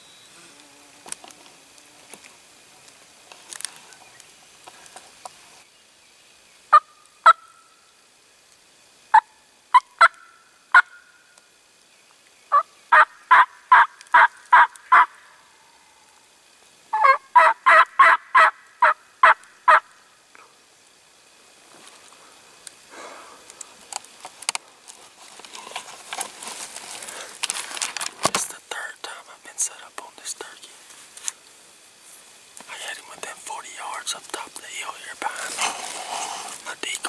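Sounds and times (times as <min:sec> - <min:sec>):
turkey yelps: 0:12.5 - 0:15.3, 0:16.9 - 0:19.9
faint rustling: 0:21.5 - 0:28.8, 0:29.4 - 0:37.0.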